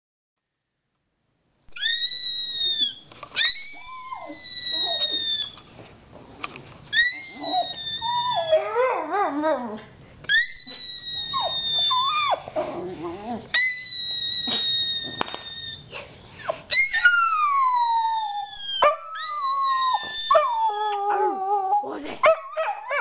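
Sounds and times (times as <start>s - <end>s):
dog barking and howling: 1.8s - 5.6s, 7.0s - 15.2s, 16.8s - 23.0s.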